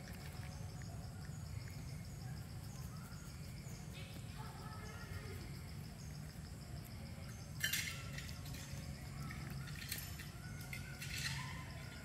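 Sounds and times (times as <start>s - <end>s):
monkey biting peanuts cracks: 0.0s - 2.1s
steady low hum: 0.0s - 12.0s.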